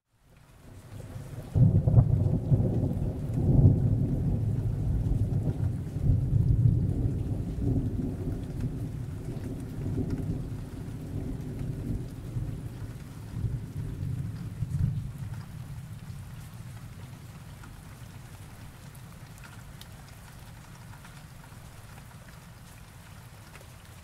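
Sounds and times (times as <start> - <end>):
deep rolling thunder: 1.4 - 16.6.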